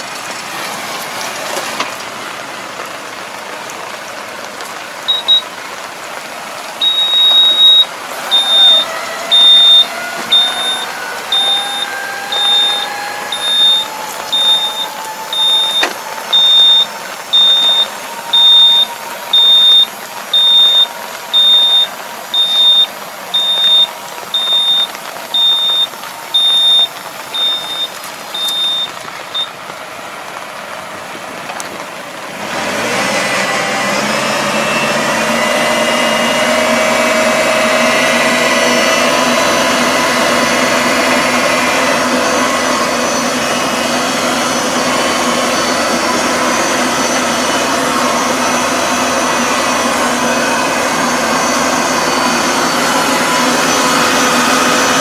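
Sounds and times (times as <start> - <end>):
tractor engine running: 0.0 - 55.0
warning beeper short high tone: 5.1 - 5.4, 6.8 - 29.5
harrow rotary turning: 6.8 - 28.9.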